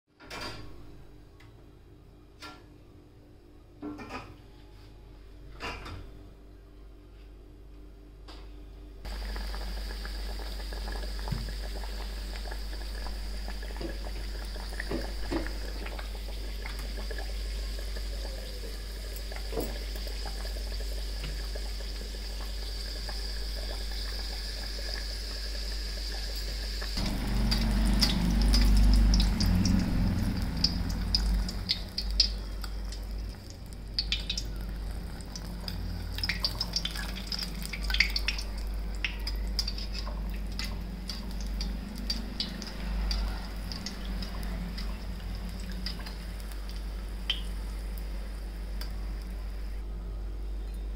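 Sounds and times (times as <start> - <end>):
oil crackling: 9.1 - 48.1
dough sizzling in hot oil: 9.1 - 49.7
low rumble: 27.0 - 33.8.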